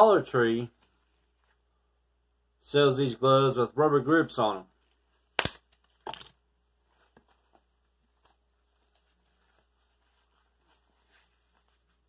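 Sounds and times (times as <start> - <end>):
glove rustling: 0.6 - 1.7, 4.7 - 12.0.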